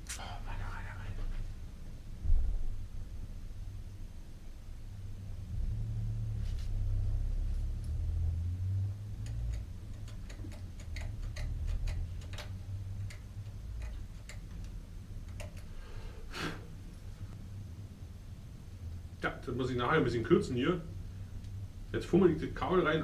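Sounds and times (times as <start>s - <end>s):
sharp clicks from bicycle work: 9.2s - 15.8s.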